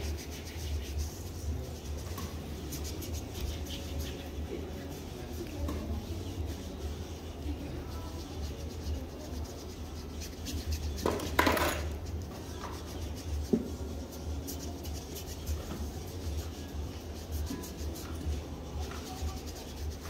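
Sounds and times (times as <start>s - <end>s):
steady low hum: 0.0s - 11.0s
foot file rasping on skin: 0.0s - 20.0s.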